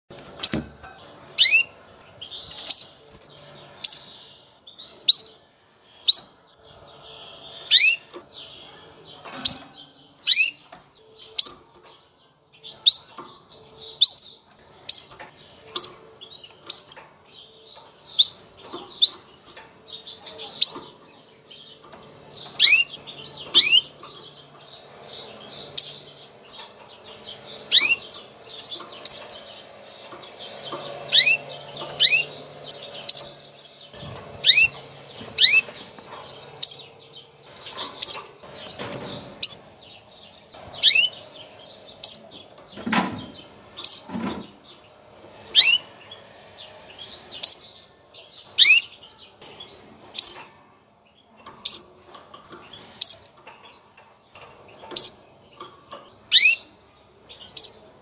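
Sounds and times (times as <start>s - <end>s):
canary chirping: 0.1s - 58.0s.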